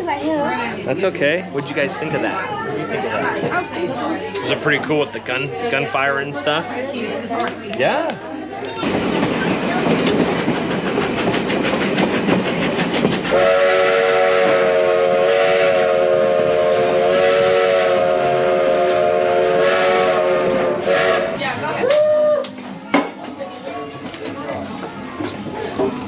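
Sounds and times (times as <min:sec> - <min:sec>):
train wheels clattering over rail joints: 0:08.7 - 0:13.6, 0:22.6 - 0:26.0
locomotive whistle chord: 0:13.3 - 0:21.4.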